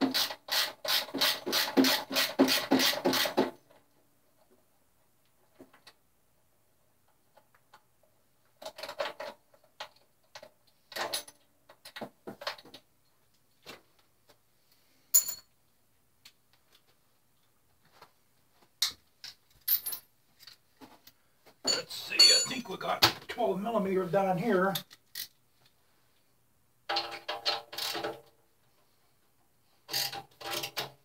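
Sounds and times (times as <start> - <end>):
hand tools clinking on bolts: 21.6 - 22.7
ringing metal clink: 21.7 - 22.6.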